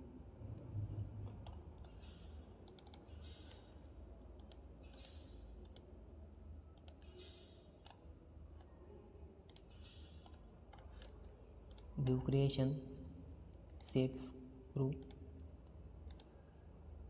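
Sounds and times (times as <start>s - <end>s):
steady low hum: 0.0s - 17.0s
faint computer mouse clicks: 16.1s - 16.4s.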